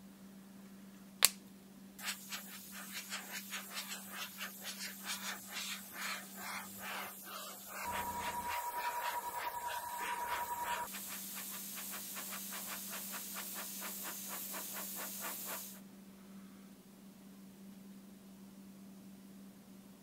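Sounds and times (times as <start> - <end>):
faint steady hum: 0.0 - 13.2
airbrush hissing: 2.0 - 15.8
thin steady whistle: 3.9 - 15.6.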